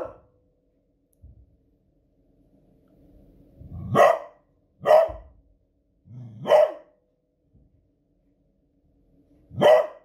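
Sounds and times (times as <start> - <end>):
dog alarm bark: 0.0 - 0.2, 3.9 - 5.3, 6.4 - 7.0, 9.6 - 10.0.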